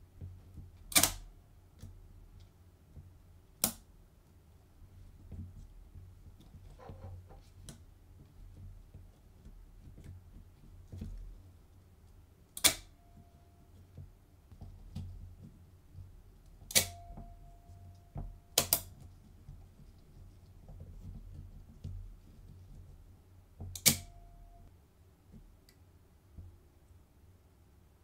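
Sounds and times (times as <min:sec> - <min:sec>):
mechanism ticking and clicking: 0:00.9 - 0:01.3, 0:12.6 - 0:13.0, 0:16.7 - 0:17.2, 0:17.9 - 0:18.9, 0:23.7 - 0:24.3
faint high ring: 0:12.9 - 0:13.8, 0:16.9 - 0:18.6, 0:24.1 - 0:24.7.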